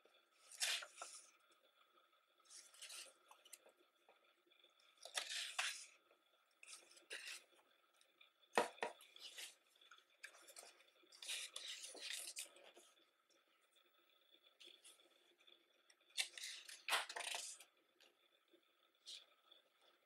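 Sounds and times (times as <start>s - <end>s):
book pages turning: 0.4s - 1.3s, 2.5s - 3.6s, 5.0s - 5.9s, 6.6s - 7.4s, 9.1s - 9.6s, 10.2s - 12.8s, 16.2s - 17.6s.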